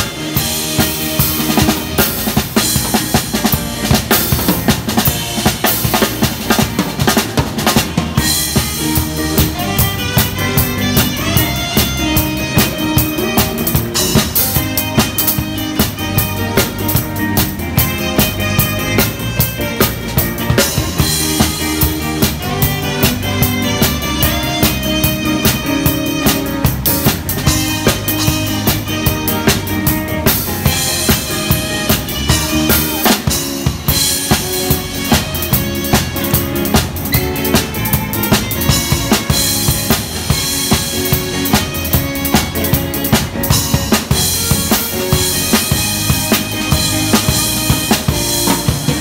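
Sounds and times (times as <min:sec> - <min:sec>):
drum kit beat: 0:00.0 - 0:49.0
live rock band playing: 0:00.0 - 0:49.0.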